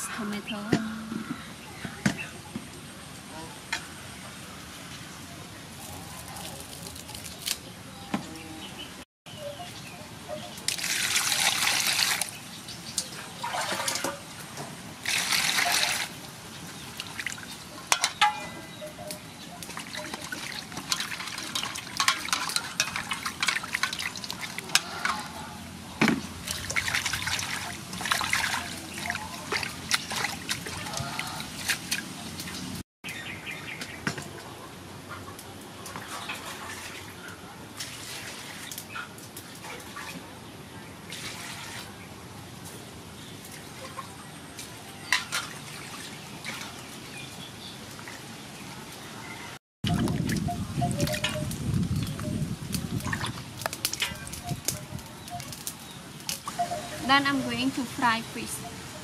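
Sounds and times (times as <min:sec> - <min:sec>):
water splashing in metal basin: 0:10.6 - 0:14.3, 0:15.0 - 0:16.2, 0:19.6 - 0:25.4, 0:26.2 - 0:32.6, 0:49.9 - 0:57.9.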